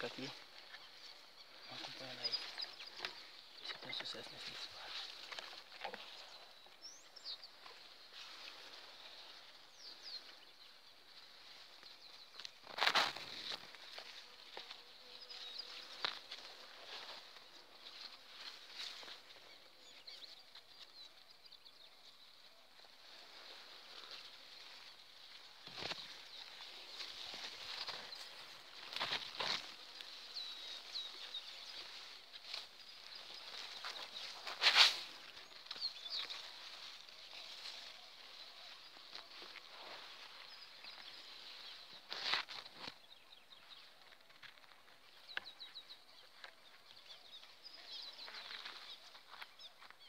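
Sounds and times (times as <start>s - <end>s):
rustling of vegetation: 0.0s - 50.0s
bird chirps: 14.2s - 50.0s.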